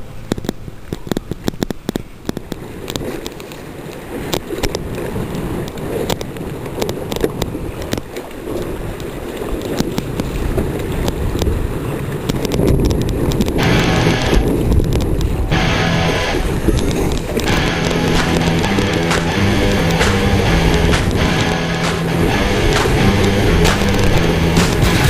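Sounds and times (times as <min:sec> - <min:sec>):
water rushing and splashing: 0:00.0 - 0:25.0
wind buffeting microphone: 0:00.0 - 0:25.0
sharp clicks and knocks: 0:12.3 - 0:25.0.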